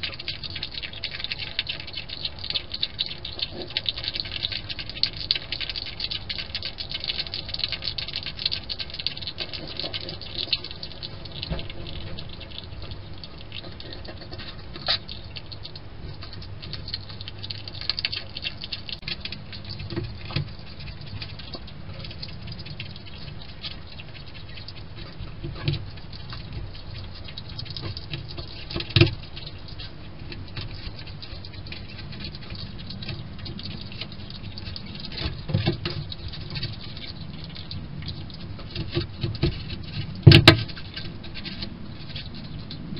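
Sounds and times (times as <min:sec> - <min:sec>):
hedgehog chewing clicks: 0:00.0 - 0:42.9.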